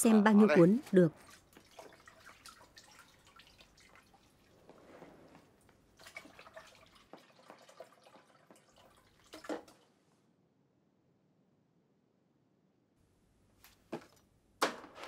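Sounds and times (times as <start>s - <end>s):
water dripping and splashing: 1.1s - 4.9s, 5.5s - 9.8s.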